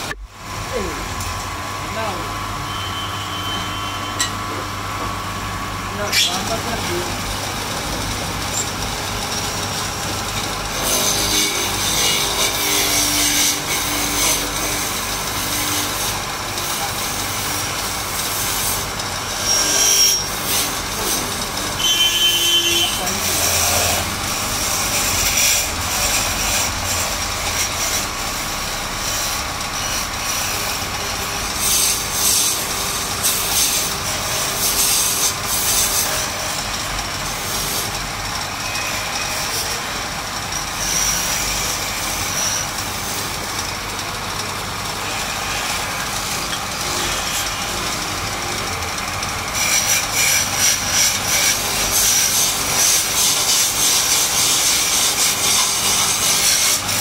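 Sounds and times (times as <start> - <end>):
lathe motor hum: 0.0 - 57.0.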